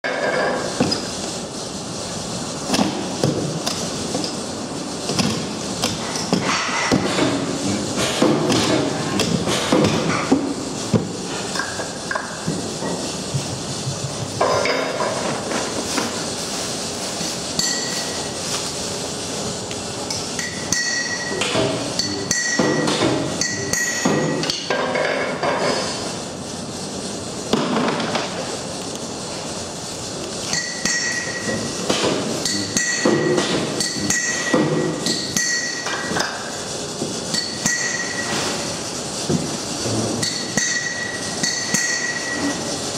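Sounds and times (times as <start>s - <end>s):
workshop background noise: 0.0s - 42.9s
metal clanking and strikes: 17.5s - 18.3s, 20.1s - 25.9s, 30.4s - 36.6s, 37.3s - 39.5s, 40.1s - 42.7s.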